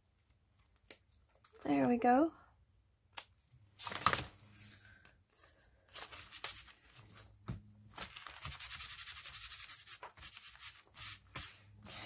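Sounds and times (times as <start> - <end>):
paper rustling: 3.8 - 4.8, 5.4 - 11.6
hands rubbing over paper: 8.3 - 11.6.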